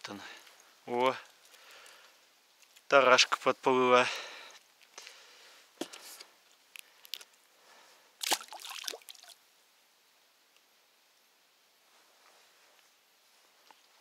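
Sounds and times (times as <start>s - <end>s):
water splashing and sloshing: 8.2s - 9.4s.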